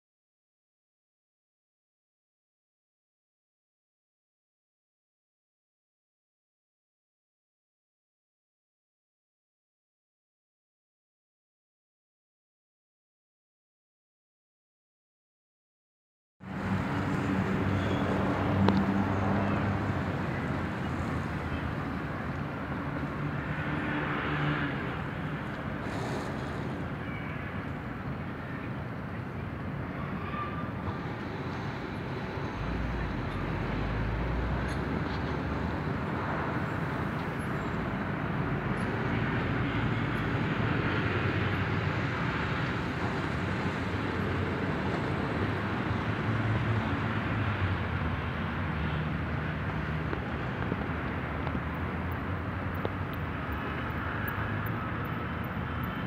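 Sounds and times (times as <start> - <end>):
distant traffic rumble: 16.4 - 56.0.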